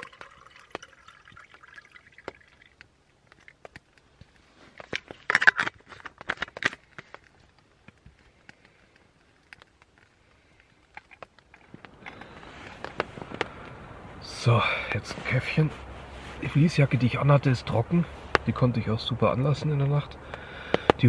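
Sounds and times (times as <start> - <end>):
water pouring and trickling: 0.0 - 4.1.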